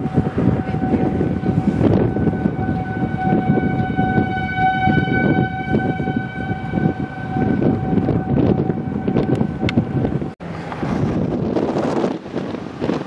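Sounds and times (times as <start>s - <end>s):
warning siren steady tone: 0.0s - 10.4s
wind buffeting microphone: 0.0s - 13.0s.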